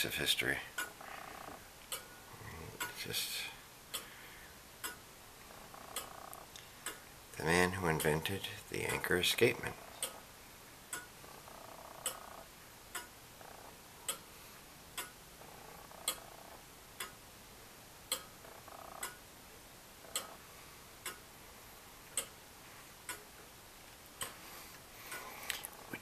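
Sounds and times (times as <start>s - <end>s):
clock ticking: 0.7s - 4.2s, 4.8s - 5.1s, 5.7s - 14.3s, 14.9s - 15.2s, 15.9s - 17.3s, 18.0s - 19.3s, 20.0s - 21.4s, 22.0s - 22.4s, 23.0s - 24.5s.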